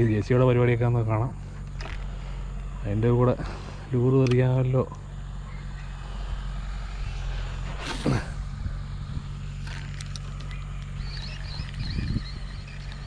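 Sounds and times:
excavator diesel engine droning: 0.0 - 13.0.

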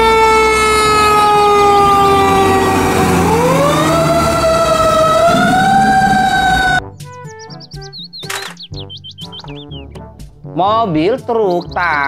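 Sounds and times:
fire truck siren wailing: 0.0 - 6.8.

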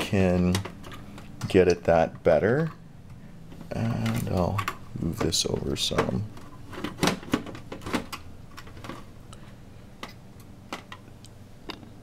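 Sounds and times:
faint low hum: 0.0 - 12.0.

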